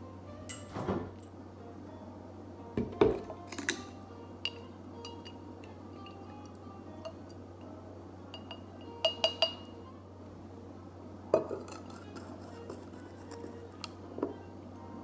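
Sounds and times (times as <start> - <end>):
spoon clinking in glass jar: 3.5 - 5.4, 6.0 - 6.2, 8.3 - 9.7, 11.3 - 13.6.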